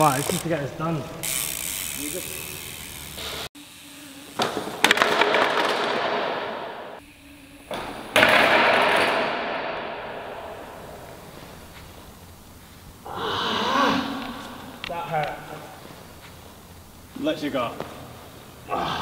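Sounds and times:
long echo in warehouse: 0:00.1 - 0:19.0
motorbike crashing onto floor: 0:04.4 - 0:06.6.

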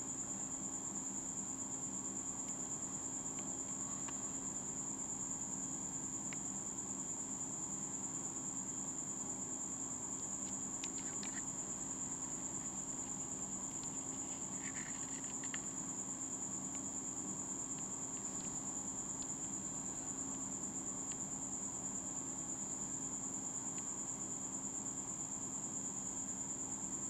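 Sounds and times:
cricket trilling: 0:00.0 - 0:27.0
faint ticks: 0:10.2 - 0:11.5, 0:12.5 - 0:15.8, 0:17.7 - 0:19.5.

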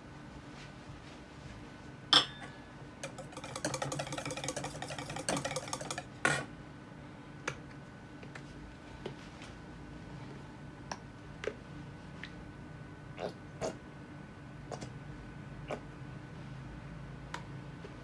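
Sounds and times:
whisk scraping in metal bowl: 0:03.0 - 0:06.1.

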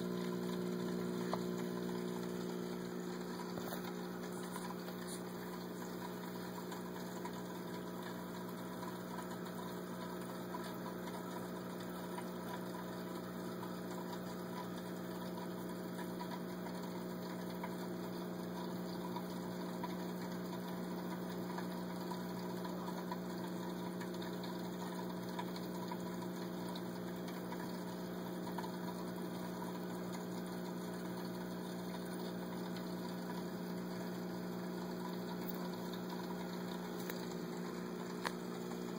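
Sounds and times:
water bubbling: 0:00.0 - 0:15.0, 0:28.5 - 0:38.9
aquarium pump humming: 0:00.0 - 0:38.9.

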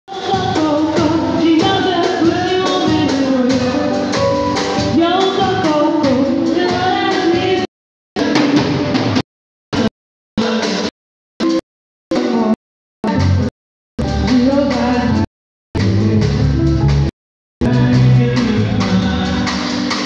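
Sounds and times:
lead vocalist singing: 0:00.1 - 0:04.2, 0:14.2 - 0:16.6, 0:17.6 - 0:20.0
bass guitar: 0:00.1 - 0:07.7, 0:11.4 - 0:20.0
keyboard: 0:00.1 - 0:09.8
drums: 0:00.1 - 0:20.0.

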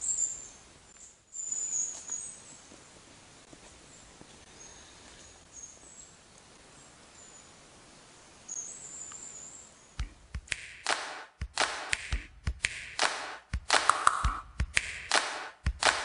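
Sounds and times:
high thin bird chirps: 0:00.0 - 0:02.6
hand claps and thumps: 0:10.0 - 0:16.0
song playing: 0:10.4 - 0:16.0.

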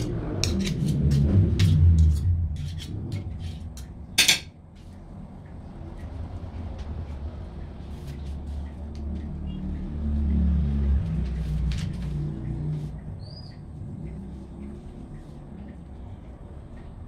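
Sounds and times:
passing vehicle engine rumble: 0:04.7 - 0:17.0.

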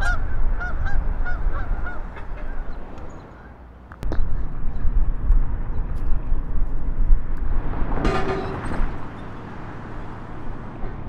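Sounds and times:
low outdoor rumble: 0:00.0 - 0:11.0.

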